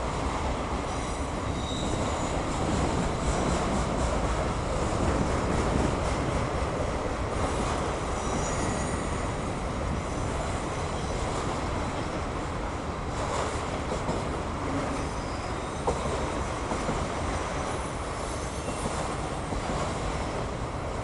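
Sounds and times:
freight train wheels rumbling on rail: 0:00.0 - 0:21.0
high-pitched wheel squeals: 0:01.5 - 0:02.4, 0:08.1 - 0:09.3, 0:15.0 - 0:16.1.

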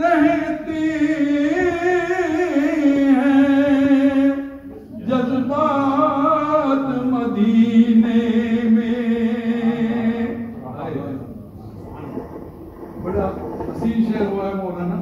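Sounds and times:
man singing unaccompanied: 0:00.0 - 0:10.6.

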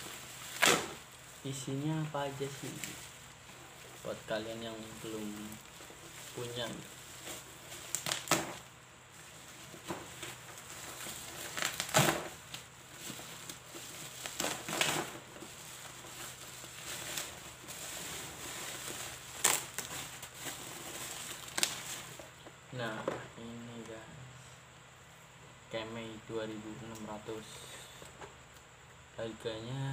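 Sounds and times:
plastic wrap crinkling: 0:00.0 - 0:22.4.

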